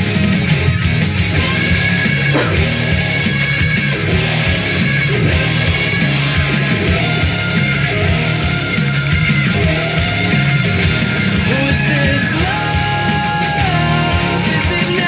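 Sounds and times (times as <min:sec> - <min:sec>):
rock music through speakers: 0:00.0 - 0:15.0.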